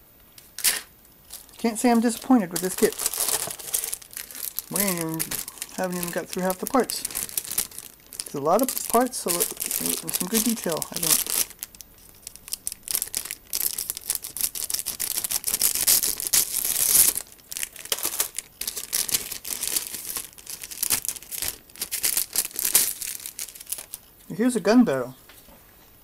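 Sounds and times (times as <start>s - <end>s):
plastic bags crinkling: 1.3s - 24.1s.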